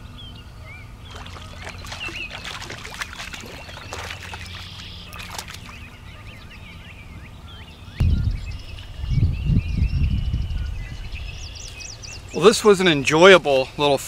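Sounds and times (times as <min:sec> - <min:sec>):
small birds chirping: 0:00.1 - 0:13.9
fish splashing in water: 0:01.0 - 0:06.0.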